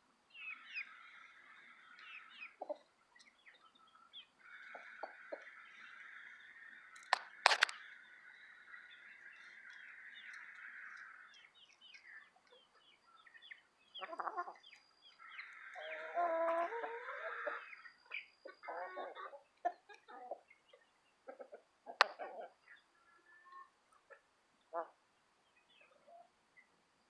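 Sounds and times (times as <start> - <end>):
chickens clucking and calling: 0.4 - 25.0.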